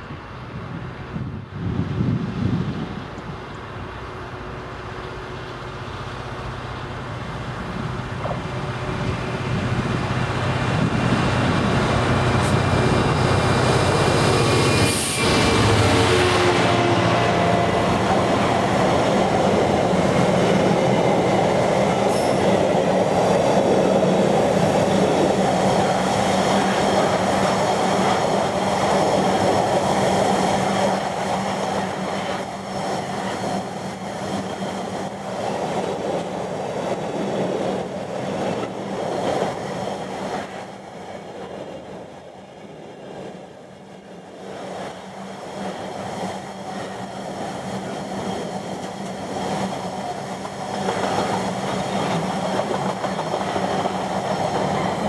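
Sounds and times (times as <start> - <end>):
diesel locomotive passing: 0.0 - 55.0
train wheels rumbling on rails: 0.0 - 55.0.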